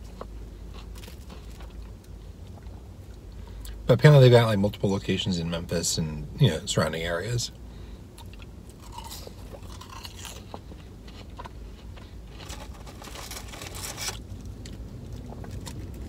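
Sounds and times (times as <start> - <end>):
person chewing crunchy fry: 0.0 - 3.8, 8.1 - 16.0
low steady hum: 0.0 - 16.0.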